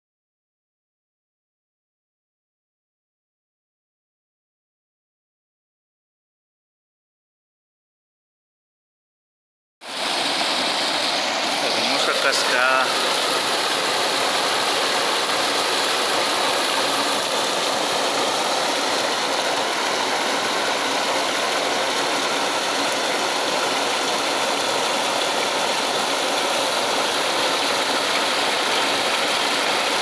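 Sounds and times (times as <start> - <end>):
waterfall splashing into pool: 9.8 - 30.0.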